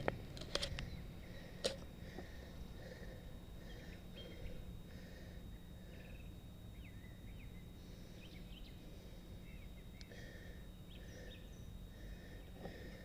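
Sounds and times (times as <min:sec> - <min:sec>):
low steady hum: 0:00.0 - 0:13.0
birds chirping and whistling: 0:03.6 - 0:04.7, 0:05.6 - 0:10.1, 0:10.8 - 0:11.8.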